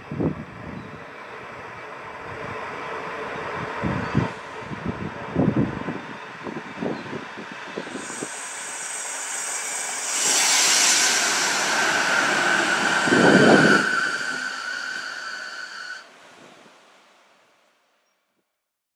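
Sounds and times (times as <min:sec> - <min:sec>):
train passing with rail noise: 0:00.0 - 0:17.8
loud low rush: 0:07.3 - 0:16.4.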